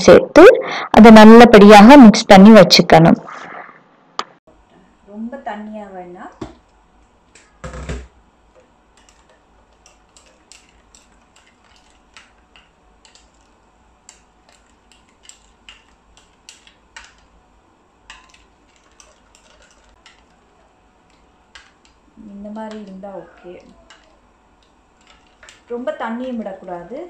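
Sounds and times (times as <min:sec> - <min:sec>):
spoon stirring thick paste: 0:08.5 - 0:26.9.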